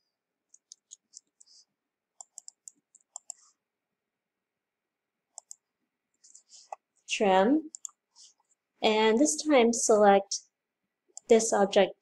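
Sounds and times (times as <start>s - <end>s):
keyboard and mouse clicks: 0.5s - 1.5s, 2.2s - 3.5s, 5.3s - 5.6s, 7.7s - 8.0s.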